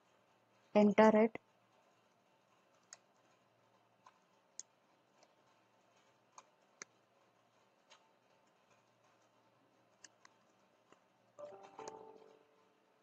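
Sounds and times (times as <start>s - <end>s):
computer keyboard keystrokes: 10.0s - 12.4s.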